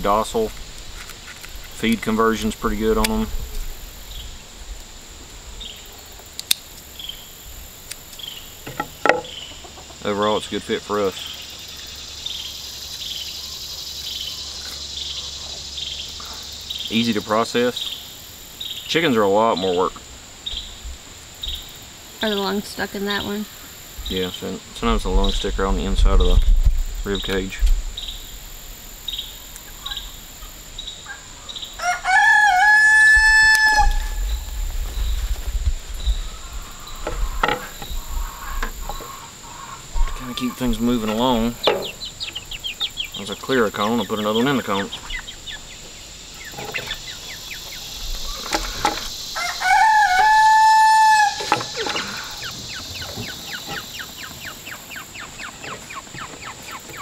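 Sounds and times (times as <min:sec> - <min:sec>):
insects chirping faintly: 0:00.0 - 0:57.0
rooster crowing: 0:31.8 - 0:34.5, 0:49.2 - 0:52.5.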